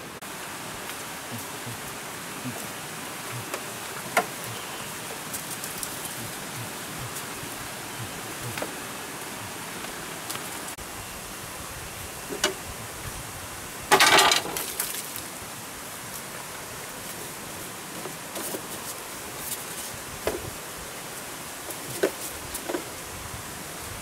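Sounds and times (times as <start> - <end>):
steady outdoor hiss: 0.0 - 24.0
bamboo floor knocking and rattling: 13.9 - 15.0.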